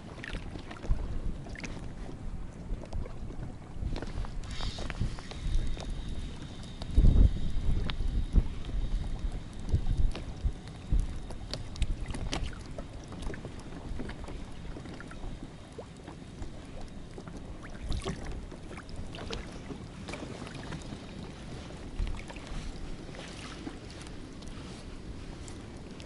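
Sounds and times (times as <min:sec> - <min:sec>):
water lapping against boat: 0:00.0 - 0:26.0
wind buffeting microphone: 0:00.0 - 0:26.0
knocks and splashes: 0:00.1 - 0:01.9, 0:10.9 - 0:15.2, 0:16.5 - 0:20.8.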